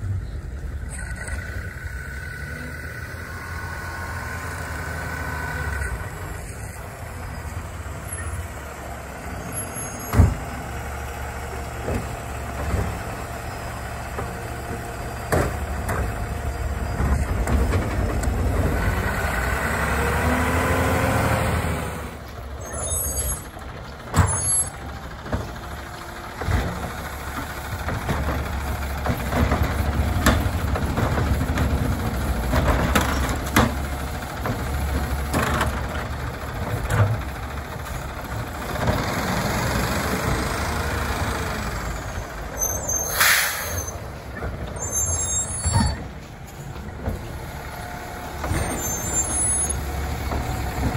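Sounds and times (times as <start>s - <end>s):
garbage truck engine running: 0.0s - 50.9s
air brake hiss: 43.0s - 44.0s.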